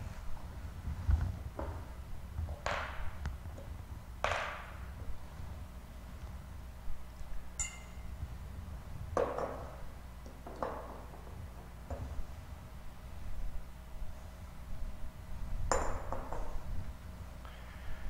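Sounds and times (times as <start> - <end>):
steady low hum: 0.0 - 18.0
glass and metal vessels clinking: 7.6 - 8.1
short high ring: 7.6 - 8.2.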